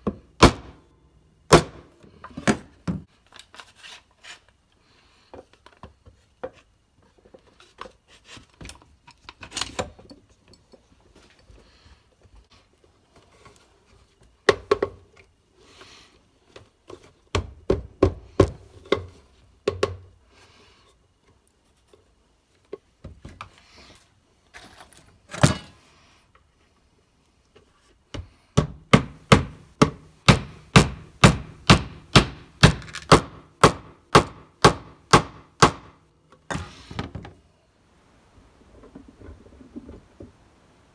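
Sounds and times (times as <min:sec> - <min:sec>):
wooden boards and clamps knocking: 0:00.0 - 0:00.8, 0:01.5 - 0:03.1, 0:17.3 - 0:20.1, 0:28.2 - 0:37.3.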